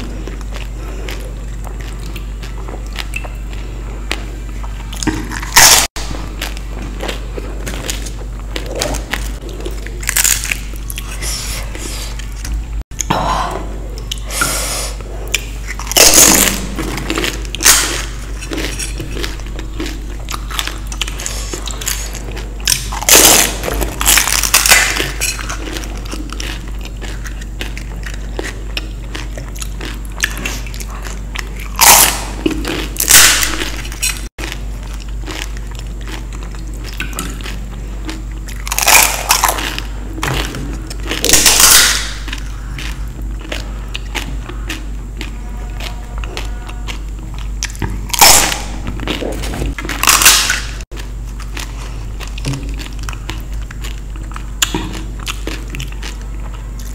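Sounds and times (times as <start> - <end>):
quiet chewing: 0.0 - 5.4, 24.1 - 33.0, 42.0 - 50.2, 50.9 - 56.9
crunching bites: 0.1 - 13.1, 15.4 - 56.9.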